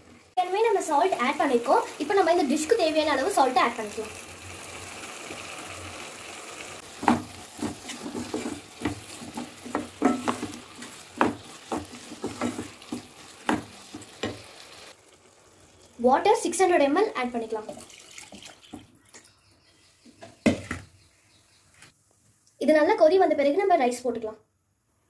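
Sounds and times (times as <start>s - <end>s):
vegetables sizzling in a pan: 0.0s - 17.9s
wooden spatula scraping a pan: 6.8s - 15.0s.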